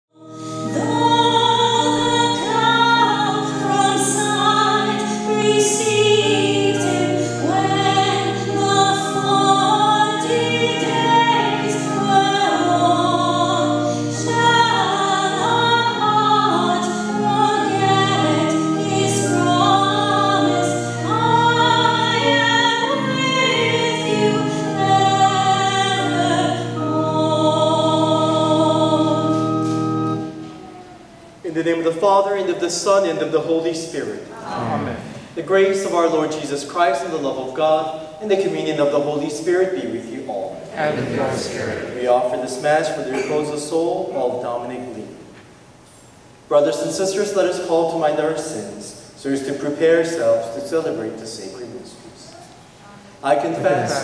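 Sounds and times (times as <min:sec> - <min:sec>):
choir singing a hymn: 0:00.2 - 0:30.6, 0:34.3 - 0:36.1, 0:40.4 - 0:44.8, 0:52.9 - 0:54.0.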